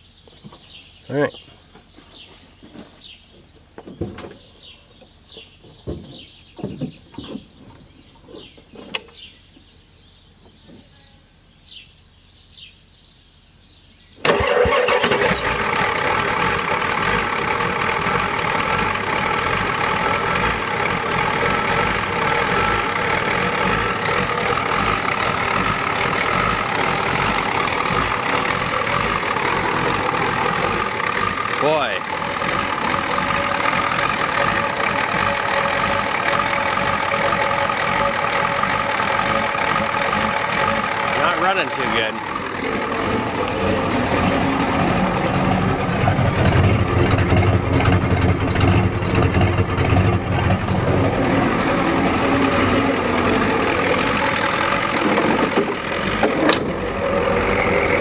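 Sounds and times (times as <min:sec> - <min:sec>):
birds chirping: 0:00.0 - 0:15.7, 0:17.0 - 0:46.5, 0:50.6 - 0:55.9
diesel engine running rough: 0:14.2 - 0:58.0.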